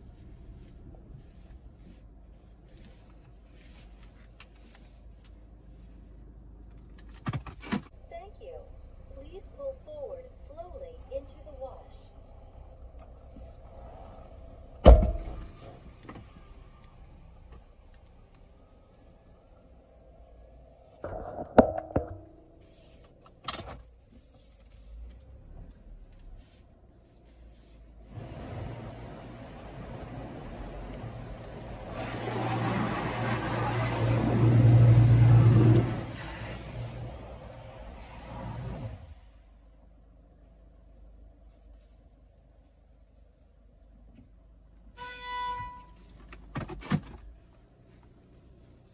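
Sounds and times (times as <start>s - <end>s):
car wash water spray hissing: 28.2s - 39.0s.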